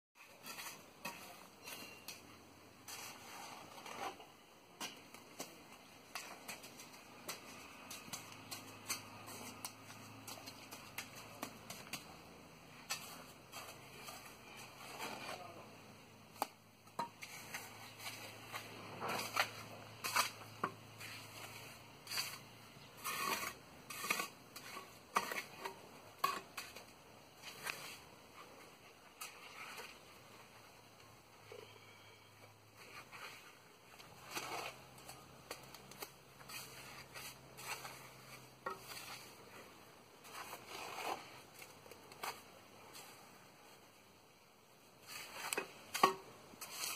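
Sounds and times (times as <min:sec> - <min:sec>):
trowel scraping wet cement: 0:00.2 - 0:02.2, 0:02.8 - 0:15.6, 0:16.3 - 0:30.6, 0:32.8 - 0:43.1, 0:45.0 - 0:46.9.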